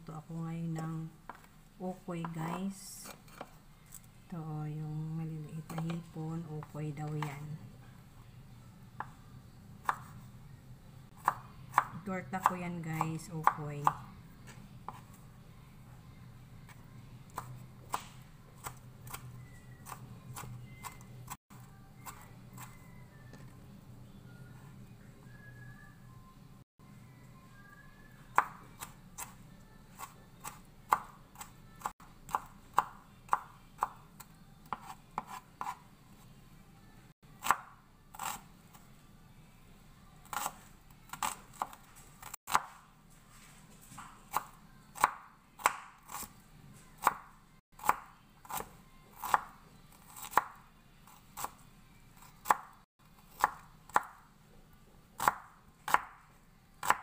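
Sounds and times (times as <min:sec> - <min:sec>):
knife chopping on wooden board: 0:11.2 - 0:14.0, 0:34.7 - 0:35.8, 0:40.3 - 0:42.8, 0:44.0 - 0:46.3, 0:50.1 - 0:50.6, 0:55.2 - 0:56.2, 0:56.8 - 0:57.0.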